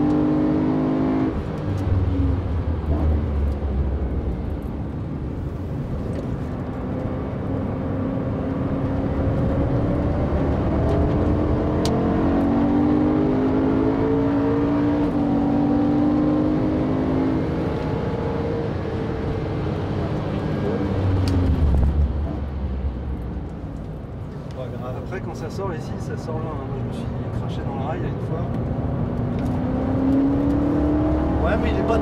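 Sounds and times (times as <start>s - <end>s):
car engine accelerating: 0.0s - 24.4s, 27.0s - 32.0s
tyre and road noise: 17.2s - 25.1s.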